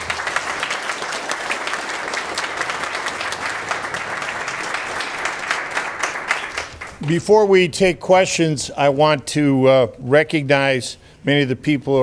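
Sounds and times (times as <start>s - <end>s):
audience applauding: 0.0s - 7.2s.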